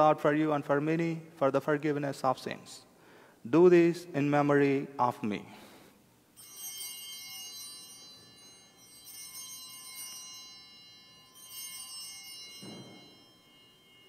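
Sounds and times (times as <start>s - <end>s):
altar bells ringing: 6.2s - 14.0s.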